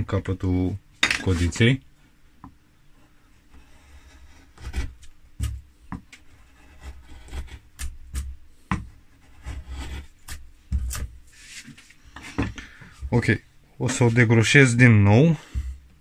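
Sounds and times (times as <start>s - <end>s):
gouge scraping wood: 3.5s - 5.6s, 6.2s - 12.6s.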